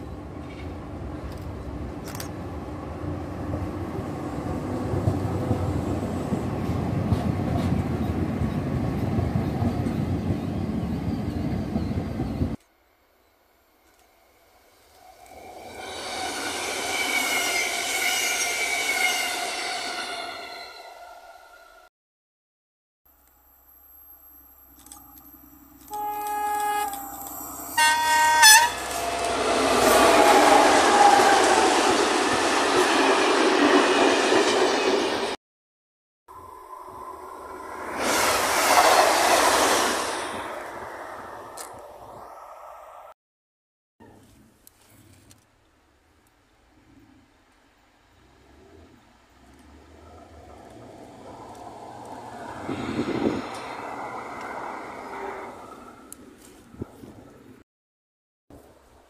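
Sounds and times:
train rumbling past: 0.0s - 12.6s, 13.9s - 21.9s, 23.5s - 35.4s, 36.3s - 43.2s, 48.1s - 57.6s
tram wheels and motors: 0.0s - 21.8s, 23.1s - 35.4s, 36.3s - 42.7s, 47.5s - 57.6s
locomotive horn blasts: 25.8s - 31.6s.

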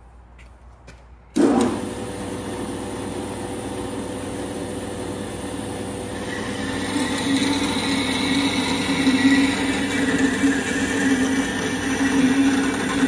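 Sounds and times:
band saw motor humming: 1.4s - 13.0s
saw blade cutting wood: 6.2s - 13.0s.

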